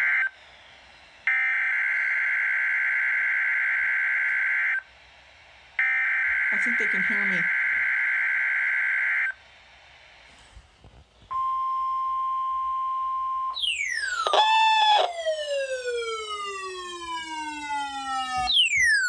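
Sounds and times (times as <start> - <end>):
siren alarm falling sweeps: 1.2 - 4.8, 5.8 - 9.4, 11.3 - 19.0
steady alarm tone: 12.0 - 19.0.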